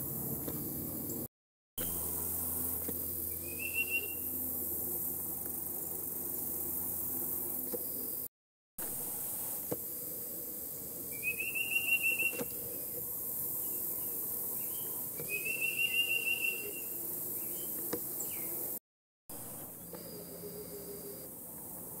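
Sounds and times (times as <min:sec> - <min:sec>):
bird whistling song: 0:03.4 - 0:04.3, 0:11.1 - 0:12.6, 0:14.6 - 0:18.5.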